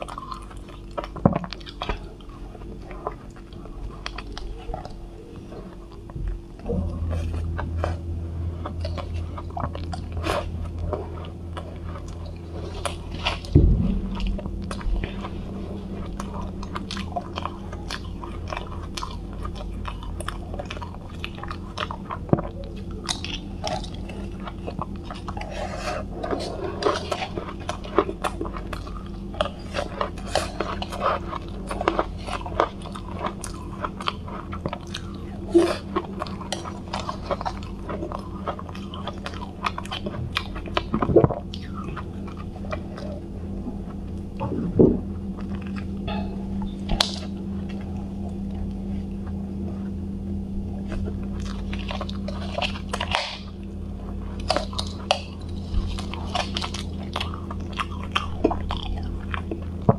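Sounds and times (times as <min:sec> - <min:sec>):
crunching and chewing ice: 0:00.0 - 0:59.9
faint low hum: 0:00.0 - 0:59.9
loud thump: 0:13.5 - 0:14.5.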